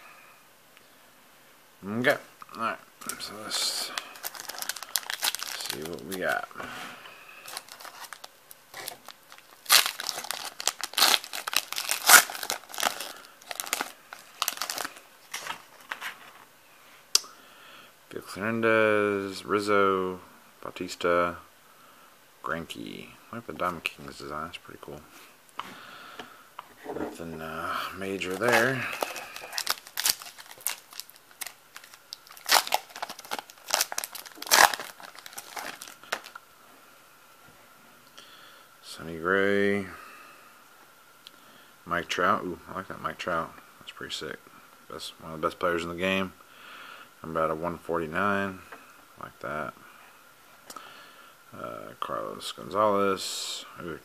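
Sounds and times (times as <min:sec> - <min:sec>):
foil wrapper crinkling and tearing: 0:03.1 - 0:06.4, 0:07.4 - 0:16.0, 0:28.1 - 0:36.4.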